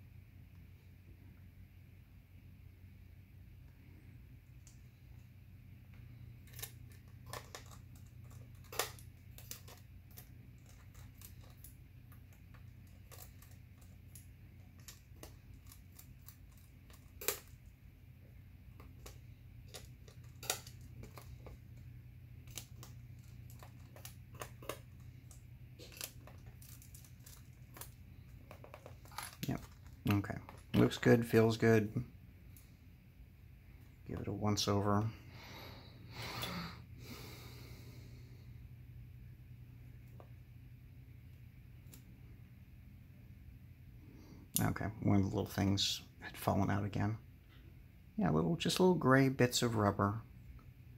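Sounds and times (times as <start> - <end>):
steady low hum: 0.0 - 50.9
plastic laptop parts clicking: 6.4 - 11.8, 22.4 - 30.8.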